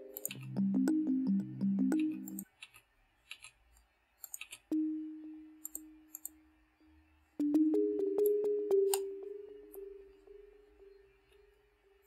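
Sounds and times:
soft electronic notes: 0:00.0 - 0:02.4, 0:04.7 - 0:12.0
small clicks: 0:00.1 - 0:00.5, 0:02.0 - 0:04.7
low synth chord: 0:07.4 - 0:11.1.

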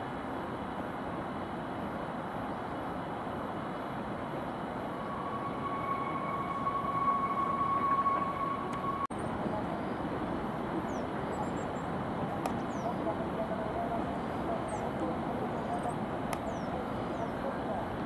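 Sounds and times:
city noise: 0:00.0 - 0:18.0
distant train rumble: 0:04.1 - 0:18.0
steady high-pitched tone: 0:04.6 - 0:09.8.

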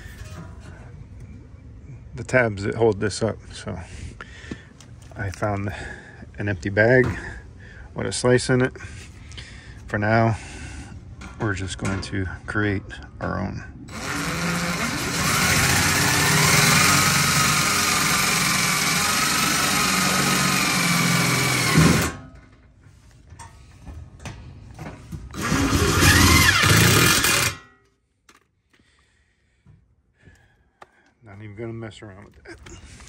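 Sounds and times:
impact driver driving screws: 0:13.9 - 0:22.2, 0:25.4 - 0:27.6.

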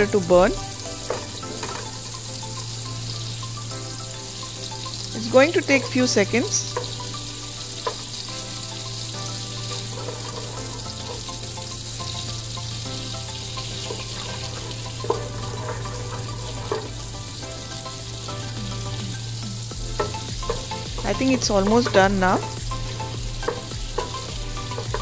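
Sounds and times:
butter sizzling in pot: 0:00.0 - 0:25.0
wooden spatula stirring: 0:08.8 - 0:12.2, 0:13.5 - 0:17.1, 0:20.0 - 0:25.0.

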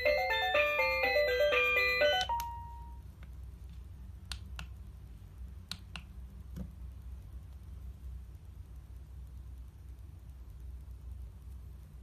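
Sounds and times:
alarm clock beeping melody: 0:00.0 - 0:03.0.

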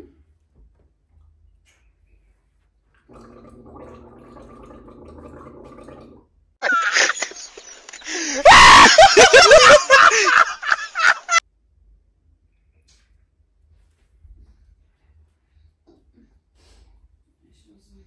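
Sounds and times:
man laughing uncontrollably: 0:06.6 - 0:11.4.

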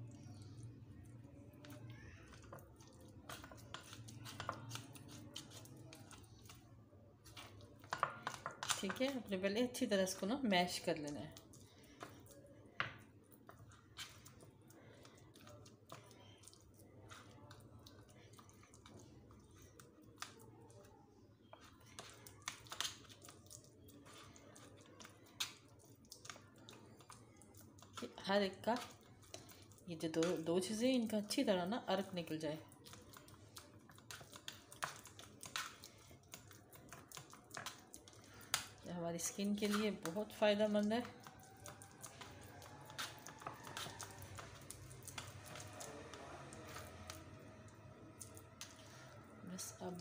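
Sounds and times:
spoon mashing food in strainer: 0:00.2 - 0:50.0.

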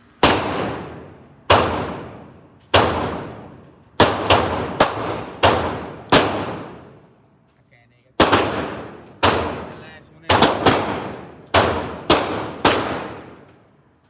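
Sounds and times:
echoing gunshots indoors: 0:00.0 - 0:07.2, 0:08.2 - 0:14.0.

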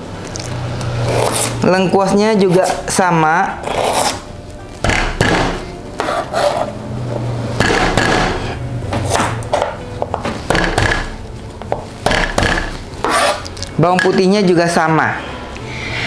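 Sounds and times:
knife cutting on plastic board: 0:05.4 - 0:06.7, 0:12.6 - 0:13.5.

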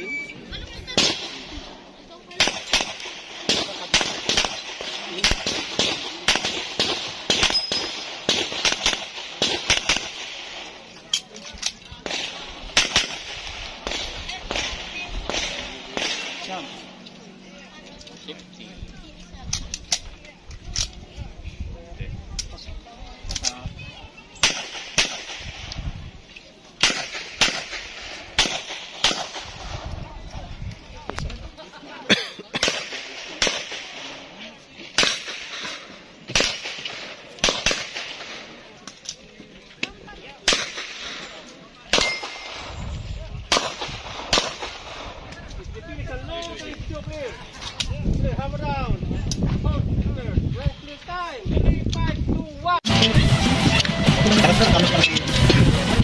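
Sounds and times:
pistol shots echoing: 0:02.4 - 0:10.7, 0:12.0 - 0:16.8, 0:26.8 - 0:29.6, 0:35.0 - 0:38.5, 0:41.9 - 0:42.7, 0:43.5 - 0:45.2.

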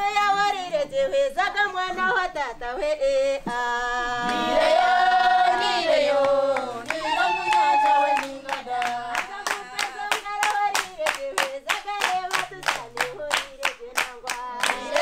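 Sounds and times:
group singing without instruments: 0:01.9 - 0:15.0
rhythmic hand clapping: 0:04.2 - 0:15.0.

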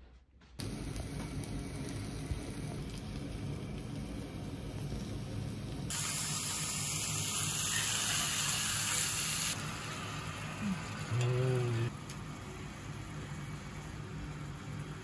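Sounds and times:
beef sizzling in a hot pan: 0:00.8 - 0:11.1.

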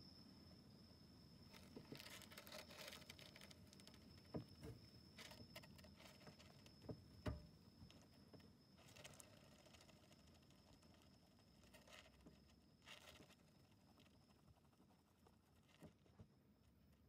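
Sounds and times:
hamster rustling on litter: 0:08.8 - 0:16.0.

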